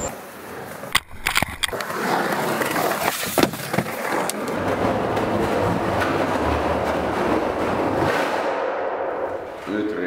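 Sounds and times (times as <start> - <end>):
skateboard wheels rolling on concrete: 0.0 - 8.1
skateboard clacks: 0.9 - 8.1.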